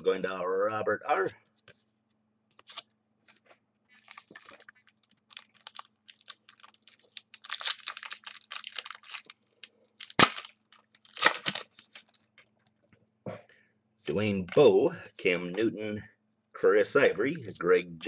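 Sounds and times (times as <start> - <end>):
wrapper crinkling and tearing: 3.9 - 12.6.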